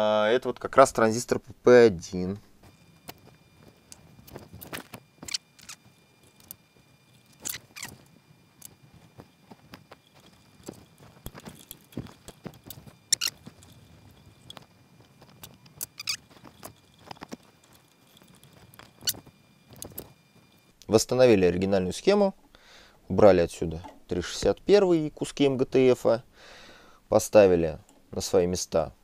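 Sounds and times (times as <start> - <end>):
faint high-pitched tones: 0.0 - 26.3
tools clicking and scratching: 3.9 - 6.6, 7.2 - 8.0, 9.6 - 20.2.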